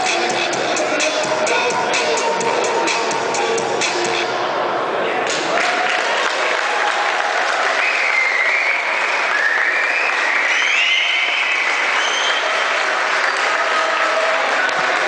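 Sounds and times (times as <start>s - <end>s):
audience applauding: 5.3s - 15.0s
high cheers: 5.4s - 15.0s.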